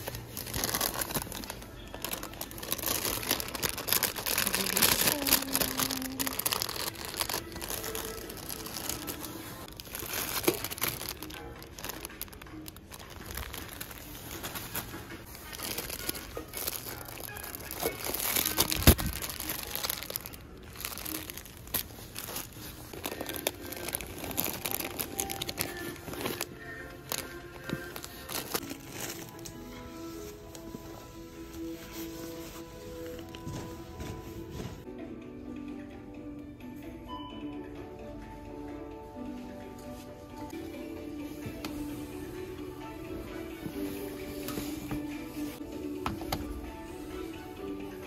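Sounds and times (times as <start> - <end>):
plastic crinkling and rustling: 0.0 - 34.9
faint music: 0.0 - 48.0.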